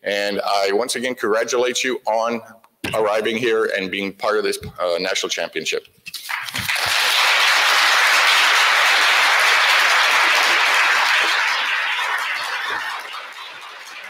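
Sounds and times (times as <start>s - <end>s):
audience applauding: 6.2s - 14.0s.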